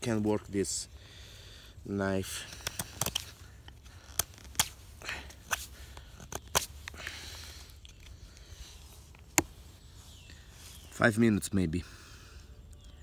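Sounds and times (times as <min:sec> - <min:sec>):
knife cutting wood: 0:02.5 - 0:08.5.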